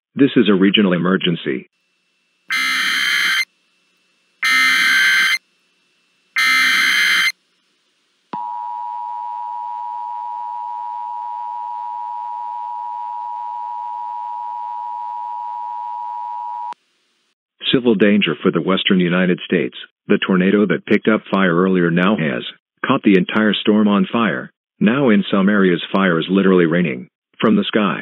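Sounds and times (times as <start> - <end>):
two-tone attention signal: 2.5 - 3.4, 4.4 - 5.4, 6.4 - 7.3
digital data bursts: 2.5 - 3.5, 4.4 - 5.4, 6.4 - 7.4.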